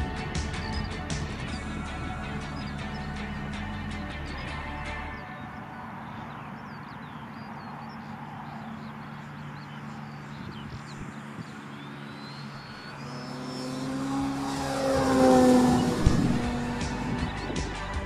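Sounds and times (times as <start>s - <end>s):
electric motor and propeller droning: 4.8s - 18.0s.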